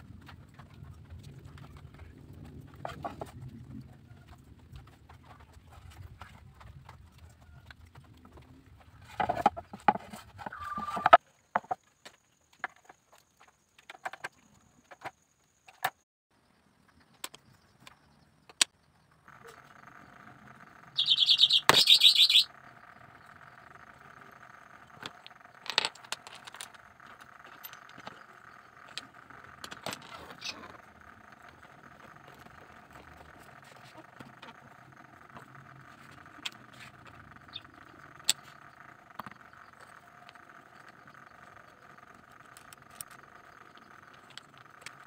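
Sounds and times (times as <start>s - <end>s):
bamboo and wood parts clicking: 0.1s - 16.0s, 16.9s - 45.0s
high rapid chirping: 20.6s - 25.6s.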